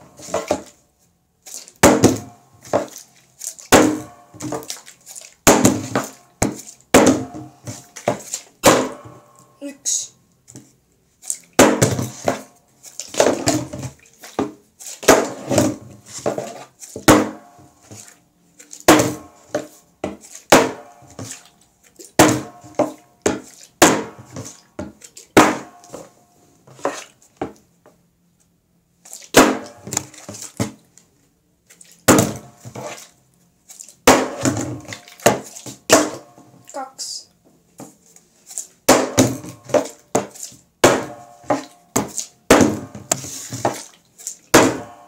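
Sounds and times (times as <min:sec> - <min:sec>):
plastic bottle clattering on wood: 0:01.8 - 0:03.0, 0:11.5 - 0:18.1.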